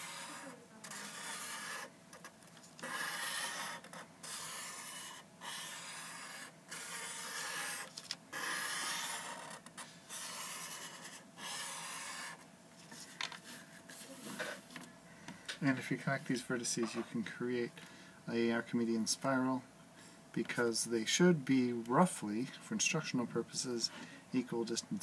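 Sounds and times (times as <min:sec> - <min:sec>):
marker drawing on paper: 0:00.0 - 0:12.4.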